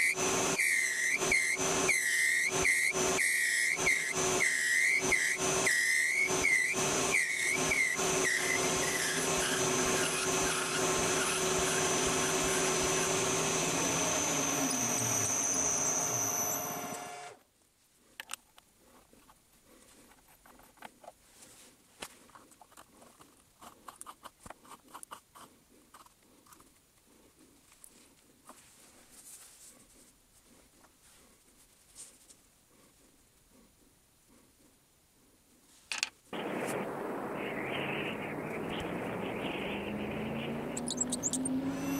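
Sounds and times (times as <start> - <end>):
cutting tool squealing: 0.0 - 17.4, 40.0 - 41.9
metal lathe running: 0.0 - 17.4.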